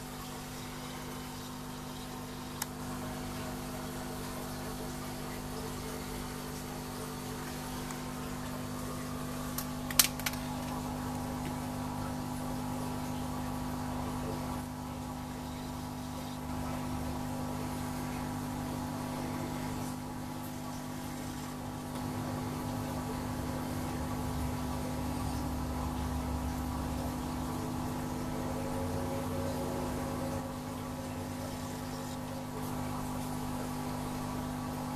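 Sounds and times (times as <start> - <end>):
aquarium motor hum: 0.0 - 34.9
sharp clicks: 9.6 - 10.8.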